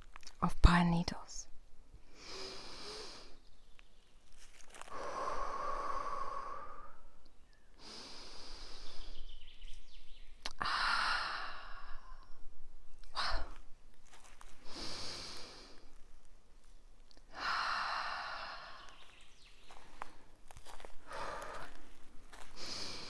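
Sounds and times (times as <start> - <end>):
woman breathing deeply: 2.0 - 3.4, 4.8 - 9.3, 10.6 - 12.4, 14.6 - 16.0, 17.3 - 19.0, 19.7 - 23.0.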